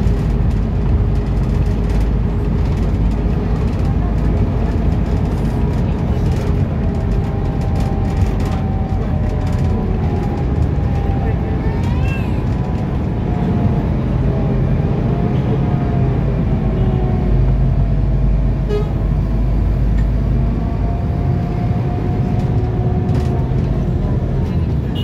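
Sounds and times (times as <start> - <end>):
bus engine and road noise: 0.0 - 25.0.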